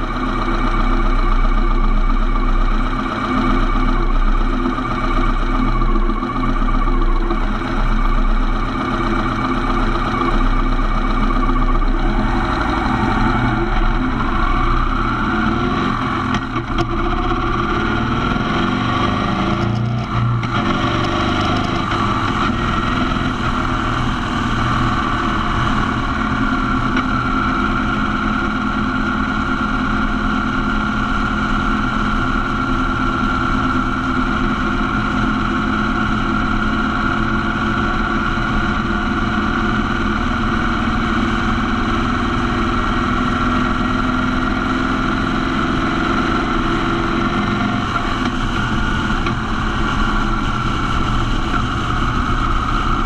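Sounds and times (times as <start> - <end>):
motorcycle engine: 0.0 - 53.0.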